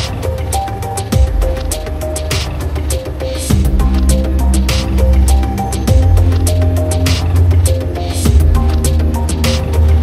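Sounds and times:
ticking percussion: 0:00.0 - 0:10.0
deep bass notes: 0:03.4 - 0:10.0.

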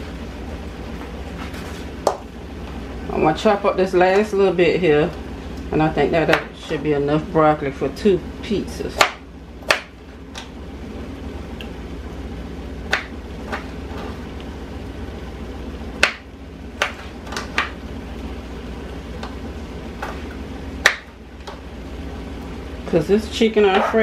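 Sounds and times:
low background hum: 0:00.0 - 0:24.0
knife chopping on cutting board: 0:09.0 - 0:09.9, 0:16.0 - 0:17.8.

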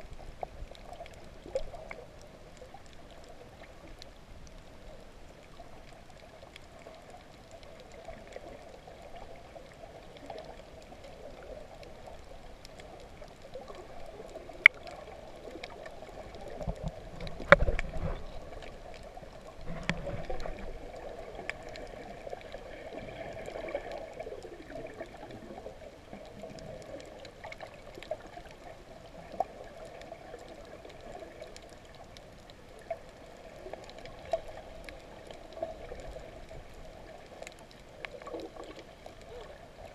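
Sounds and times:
muffled rush of water: 0:00.0 - 0:39.9
heavy thump with swirling water: 0:16.6 - 0:18.4.

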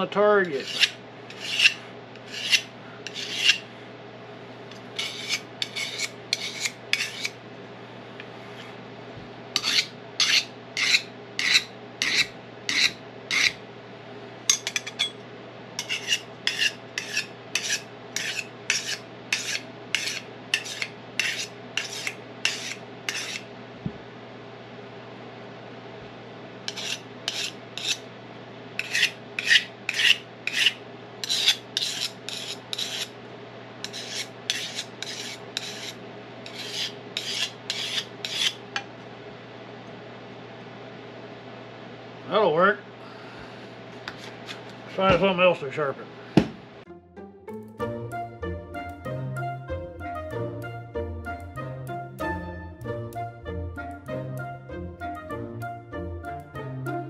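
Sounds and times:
steady low hum: 0:00.0 - 0:57.0
blade rasping on sharpening plate: 0:00.5 - 0:03.7, 0:05.0 - 0:07.4, 0:09.6 - 0:13.6, 0:14.5 - 0:15.1, 0:15.8 - 0:23.5, 0:26.7 - 0:28.0, 0:28.8 - 0:33.1, 0:33.8 - 0:38.6.

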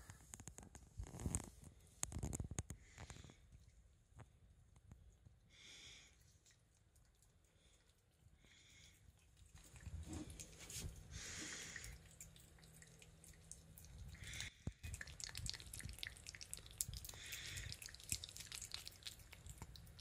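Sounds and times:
cat licking wet tongue clicks: 0:11.8 - 0:20.0.

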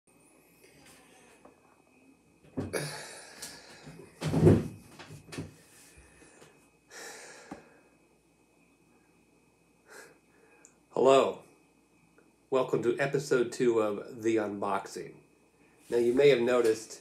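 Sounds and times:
thumps of sitting down: 0:03.8 - 0:05.6.

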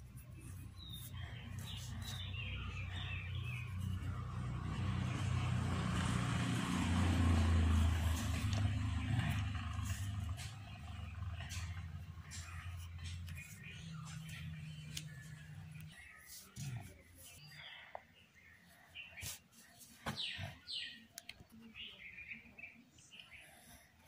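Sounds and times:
vehicle engine rumble: 0:00.0 - 0:17.4.

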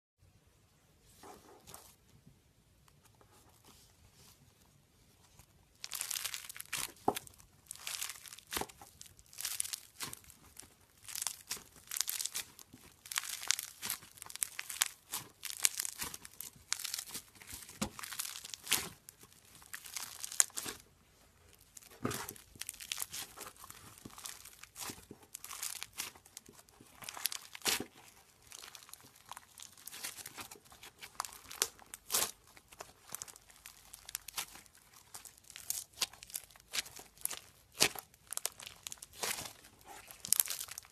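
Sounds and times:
slime beads crackling and popping: 0:05.4 - 0:40.9.

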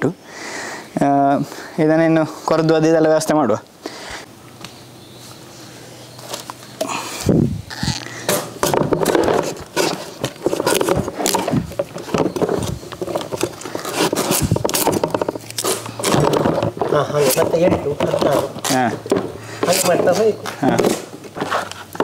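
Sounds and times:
knife cutting gourds: 0:07.7 - 0:22.0.

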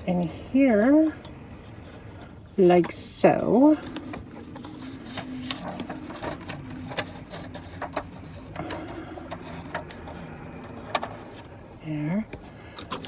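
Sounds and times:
faint low hum: 0:00.0 - 0:13.0
paper pages rustling: 0:03.7 - 0:11.5.

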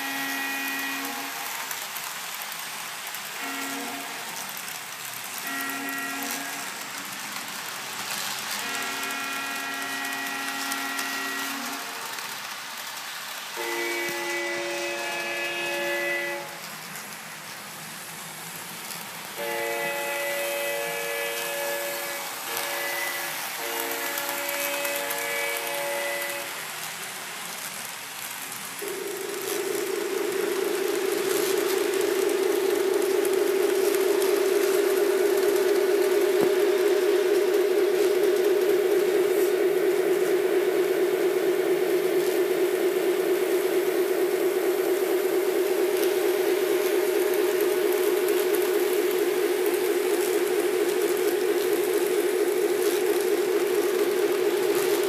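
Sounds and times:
model train horn: 0:00.0 - 0:02.4, 0:03.4 - 0:04.5, 0:05.2 - 0:07.0, 0:08.1 - 0:12.7, 0:13.4 - 0:17.1, 0:19.3 - 0:26.8
model train running on track: 0:00.0 - 0:55.0
simulated diesel engine drone: 0:28.8 - 0:55.0.

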